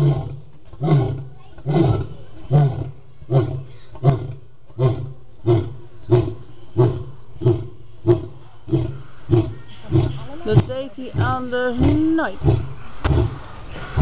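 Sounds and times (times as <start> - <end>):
lion roaring grunts: 0.0 - 10.6.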